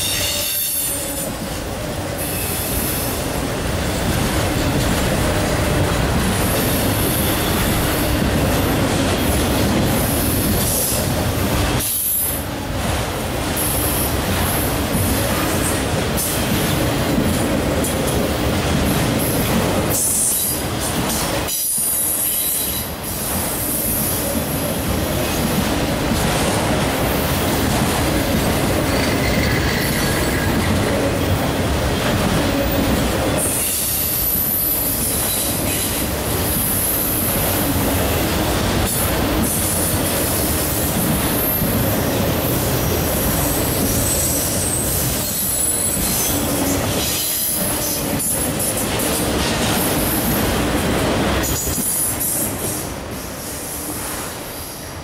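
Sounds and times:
freight train wheels rumbling: 0.0 - 55.0.

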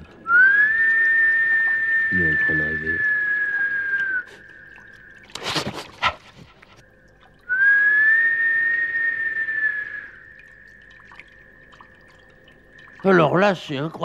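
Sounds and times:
high whistled note: 0.3 - 5.9, 7.5 - 11.4.

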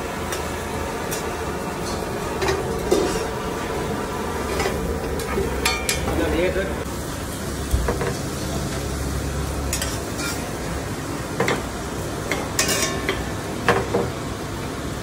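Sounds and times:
light frying hiss: 6.2 - 15.0
metal spatula scraping a pan: 9.7 - 10.4.

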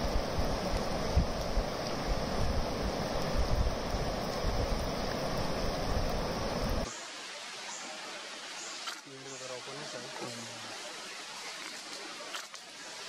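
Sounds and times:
wind rumble on microphone: 0.0 - 6.9
rushing river water: 0.0 - 13.0.

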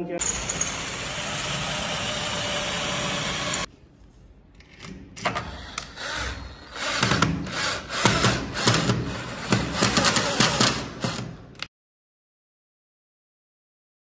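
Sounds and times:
cordless drill driving screw: 0.2 - 3.7, 5.4 - 11.3.

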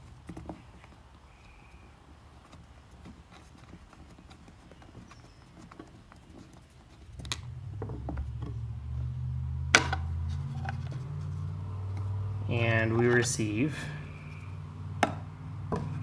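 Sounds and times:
low steady hum: 6.9 - 16.0
wooden clicks and taps: 15.0 - 16.0
wooden knock: 15.0 - 16.0.

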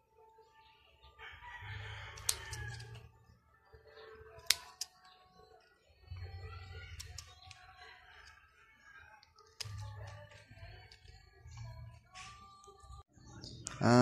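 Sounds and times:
scissors snipping leaves: 2.1 - 3.0, 4.4 - 5.0, 6.9 - 7.6, 9.2 - 11.2.

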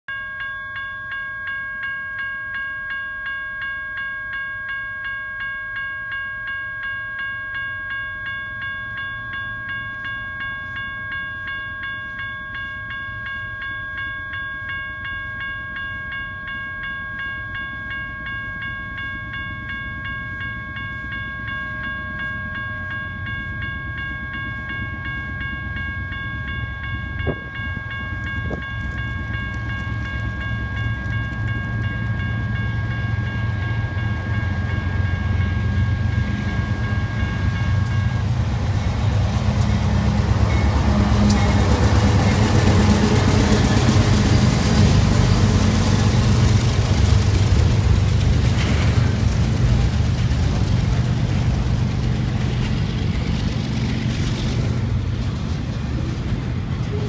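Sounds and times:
crossing warning bell ringing: 0.1 - 57.0
diesel train rumbling: 16.8 - 57.0.

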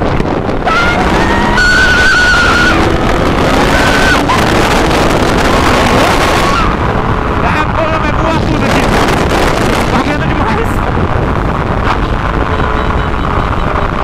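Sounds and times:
motorcycle engine running hard: 0.0 - 14.0
wind rushing over microphone: 0.0 - 14.0
woman screaming: 0.6 - 4.6.

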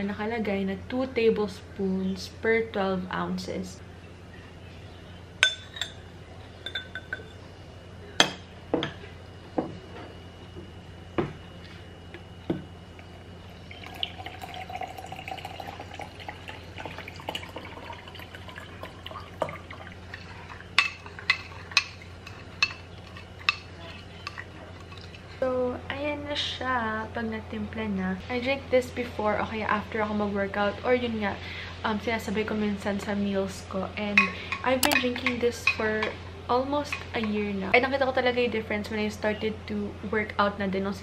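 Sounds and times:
spoon clinking while stirring: 6.6 - 7.4, 34.8 - 35.8
water pouring into glass: 13.7 - 21.2.

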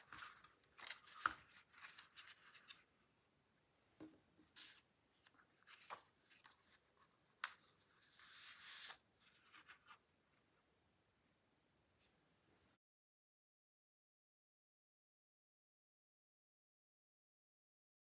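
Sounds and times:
paper rustling: 0.0 - 2.9, 4.5 - 10.0
hands rubbing paper: 7.8 - 9.7.

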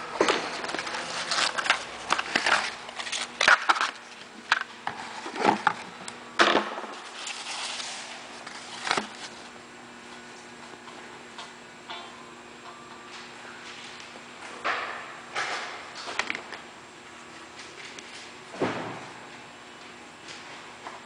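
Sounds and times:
cardboard and paper crinkling: 0.2 - 4.2, 7.0 - 9.5
soft paper rustle: 7.0 - 9.5.

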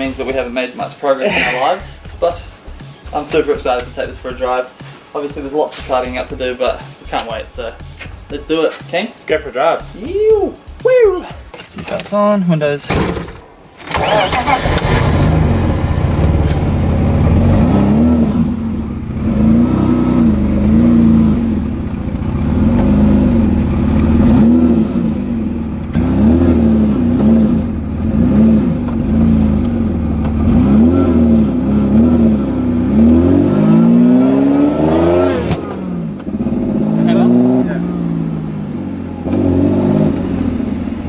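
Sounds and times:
car engine revving: 13.2 - 41.0.

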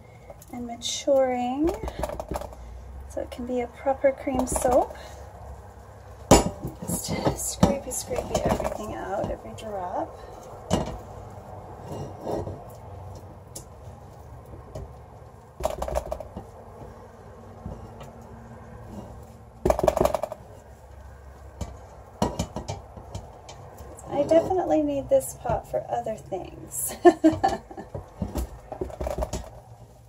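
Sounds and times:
knocks against pot rims: 1.6 - 2.7, 6.3 - 9.4, 15.6 - 16.5, 19.6 - 20.5, 21.6 - 23.7, 27.2 - 29.7.

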